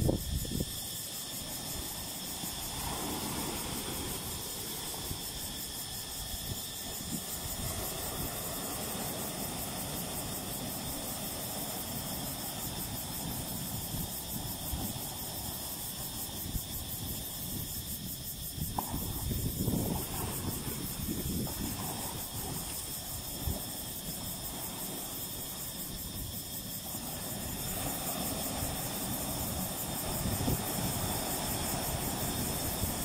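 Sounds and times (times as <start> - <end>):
small waves washing over rocks: 1.2 - 16.4, 18.6 - 33.0.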